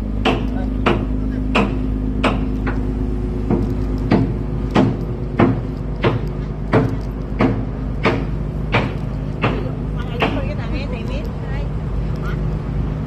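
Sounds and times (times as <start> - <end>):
engine hum: 0.0 - 13.0
sharp knocks: 0.2 - 10.6.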